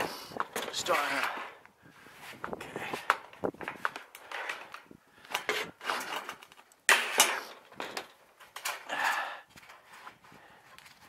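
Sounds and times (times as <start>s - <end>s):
steel roofing clunks and scrapes: 0.4s - 8.9s.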